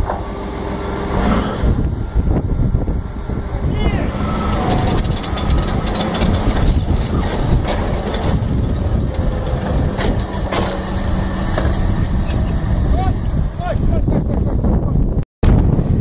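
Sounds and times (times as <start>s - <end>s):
bulldozer diesel engine running: 0.0s - 16.0s
steel tracks clanking: 4.1s - 13.4s
rocks cracking and rattling: 4.4s - 12.4s.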